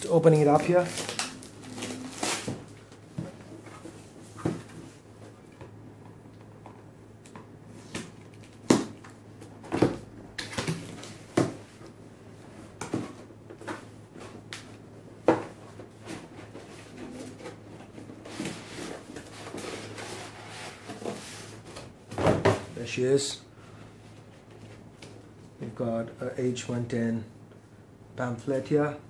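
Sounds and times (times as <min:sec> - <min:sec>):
paper and plastic rustling: 0:00.2 - 0:05.0.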